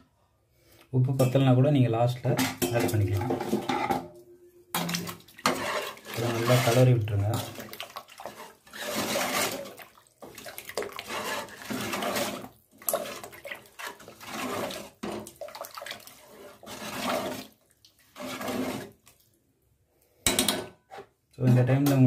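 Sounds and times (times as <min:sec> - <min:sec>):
ladle stirring liquid in a metal pot: 0:02.4 - 0:04.0, 0:04.7 - 0:19.4.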